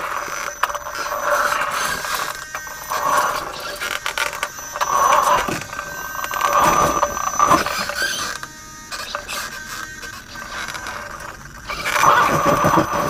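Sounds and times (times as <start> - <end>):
motors and gears whining: 0.0 - 13.0.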